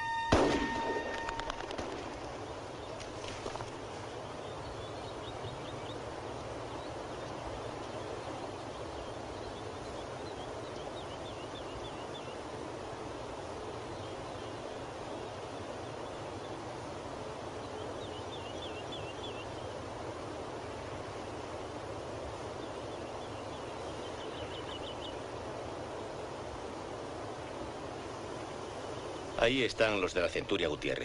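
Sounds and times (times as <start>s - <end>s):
outdoor ambient hiss: 0.0s - 31.0s
small bird twittering: 17.6s - 19.8s.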